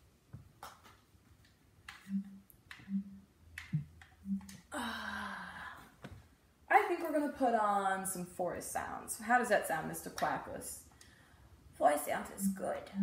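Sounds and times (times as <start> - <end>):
low hummed notes: 1.9 - 5.8, 12.2 - 13.0
breathy sound: 4.3 - 6.0.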